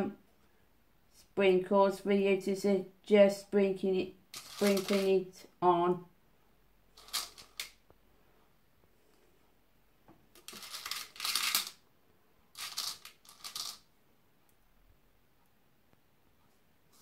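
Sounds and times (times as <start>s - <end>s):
sprinkles rattling in container: 4.4s - 5.1s, 7.0s - 7.6s, 10.4s - 11.8s, 12.6s - 13.8s.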